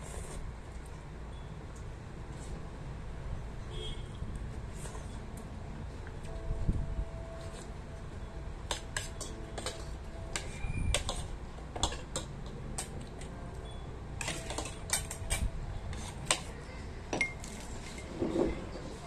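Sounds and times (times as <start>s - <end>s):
cutlery clinking on plates: 8.7s - 13.0s, 14.2s - 16.5s.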